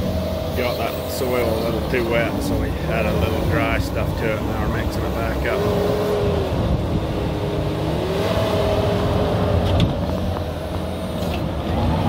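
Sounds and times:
diesel engine running: 0:00.0 - 0:12.0
steady machine whine: 0:00.0 - 0:12.0.

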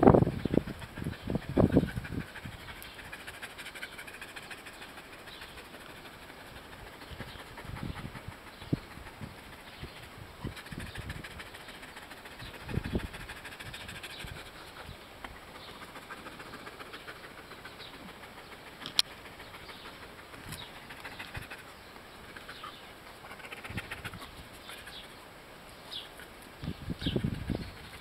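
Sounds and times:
small bird chirps: 0:19.4 - 0:28.0.

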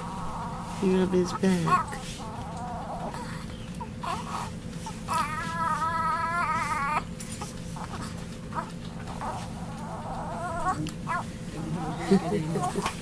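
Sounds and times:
newborn baby crying: 0:00.2 - 0:07.1, 0:08.6 - 0:11.2.

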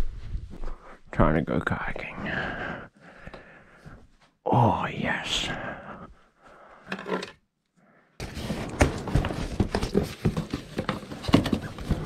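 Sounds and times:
cardboard flaps knocking and scraping: 0:08.2 - 0:12.0.

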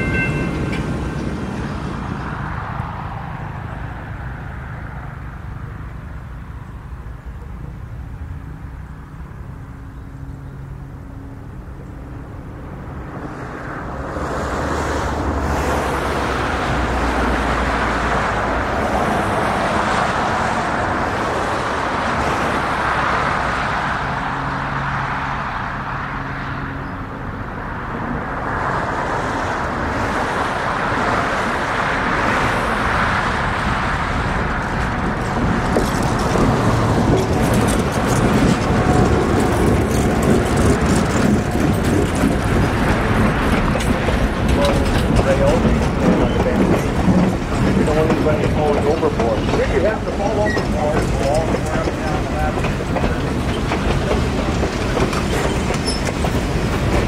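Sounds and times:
diesel locomotive humming: 0:00.0 - 0:57.0
steady rushing sound: 0:10.8 - 0:57.0.

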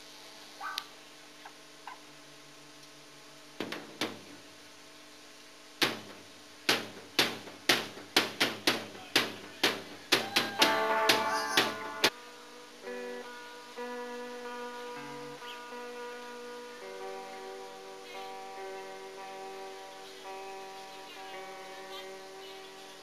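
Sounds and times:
stray knocks: 0:03.6 - 0:04.4, 0:05.8 - 0:12.1
electric guitar chords: 0:10.6 - 0:23.0.

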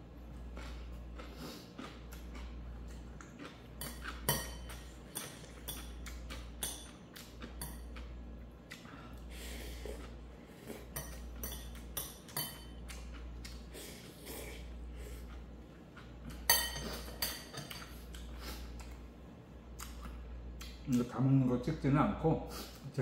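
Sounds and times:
low steady hum: 0:00.0 - 0:23.0
utensils clinking against dish: 0:10.9 - 0:12.8, 0:16.3 - 0:18.0.

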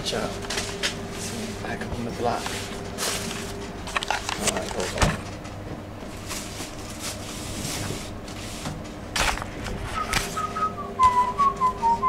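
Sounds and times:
whistled notes stepping down: 0:10.0 - 0:12.0.

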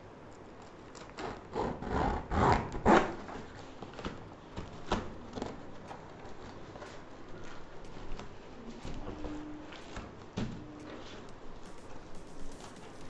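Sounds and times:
packing tape ripping off box: 0:00.9 - 0:04.2.

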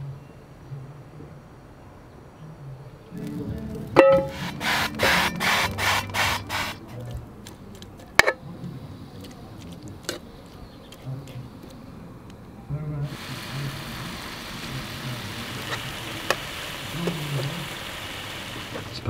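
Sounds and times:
oil spray hissing bursts: 0:04.2 - 0:06.8, 0:13.1 - 0:19.0.

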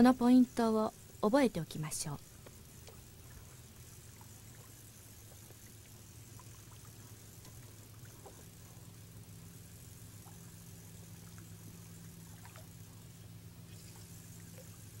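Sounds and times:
low hum: 0:00.0 - 0:15.0
faint ticks: 0:02.2 - 0:13.0
water lapping against rubber boat: 0:02.2 - 0:15.0.

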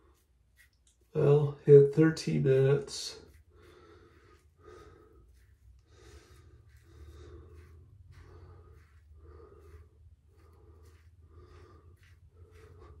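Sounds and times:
razor scraping stubble: 0:00.0 - 0:13.0
person breathing: 0:03.2 - 0:13.0.

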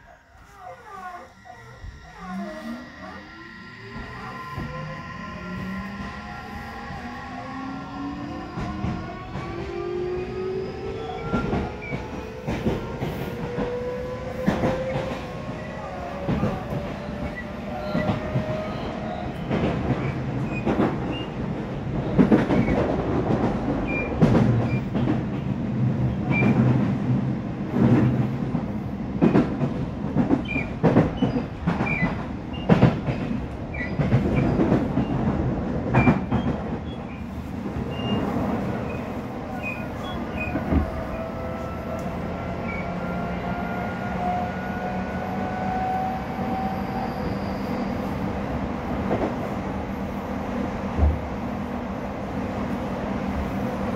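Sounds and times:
train motor whine: 0:00.0 - 0:19.5
wheels rumbling on rail: 0:00.0 - 0:53.9.

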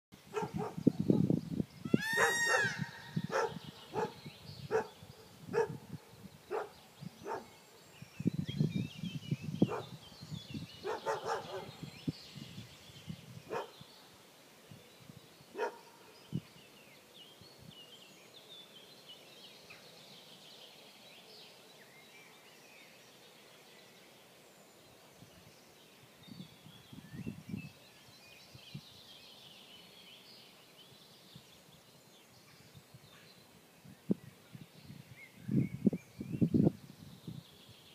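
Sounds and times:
short animal calls: 0:01.9 - 0:03.5.

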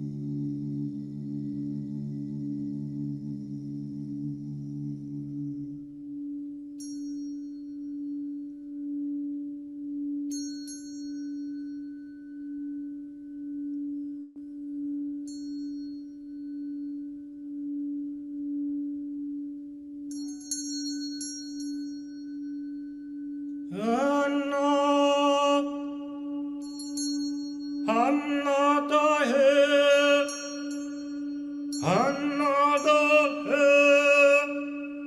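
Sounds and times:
singing bowl drone: 0:00.0 - 0:35.0
high chime struck: 0:20.1 - 0:23.1, 0:26.6 - 0:28.7, 0:30.0 - 0:34.2.

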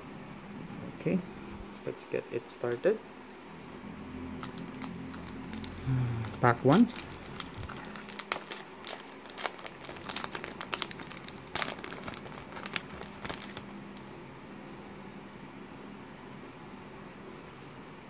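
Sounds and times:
foil wrapper crinkling: 0:04.3 - 0:14.2.

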